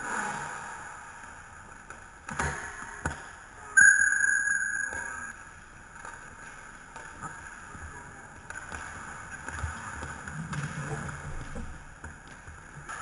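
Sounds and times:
referee's whistle blast: 3.8s - 5.3s
skate wheels rumbling on floor: 5.5s - 13.0s.

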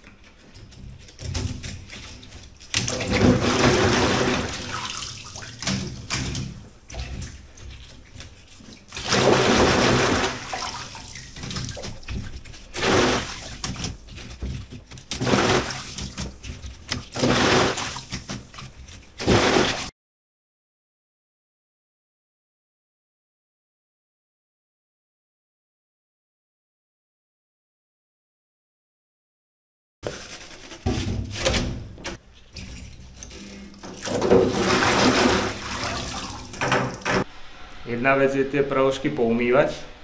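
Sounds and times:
water sloshing in a sink: 0.0s - 19.9s, 30.0s - 37.3s.

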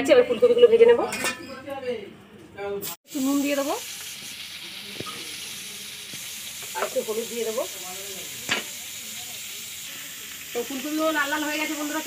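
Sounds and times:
vegetables sizzling in oil: 2.8s - 12.0s.

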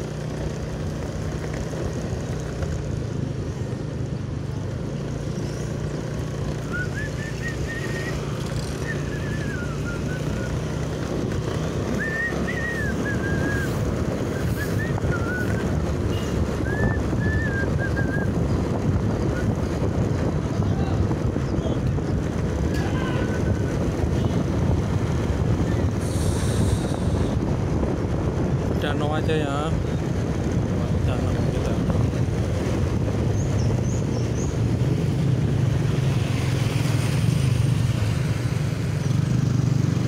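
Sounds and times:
low engine hum: 0.0s - 40.0s
road noise: 0.0s - 40.0s
wind on microphone: 5.7s - 40.0s
person whistling a tune: 6.6s - 10.7s, 11.9s - 15.6s, 16.6s - 18.3s.

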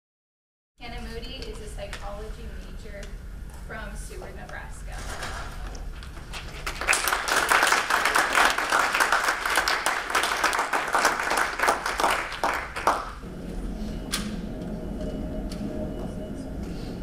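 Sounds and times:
audience applauding: 6.4s - 13.2s.

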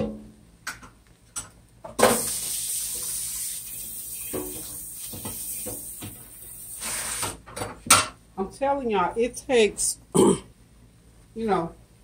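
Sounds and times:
oil sizzling in a skillet: 2.0s - 7.2s.

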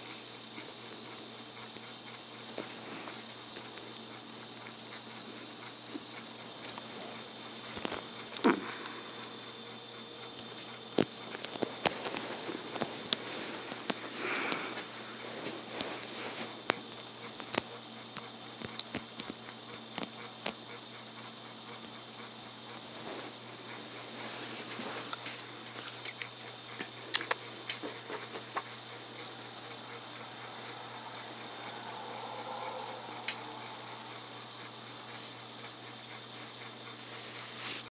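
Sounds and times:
faint steady hum: 0.0s - 37.9s.

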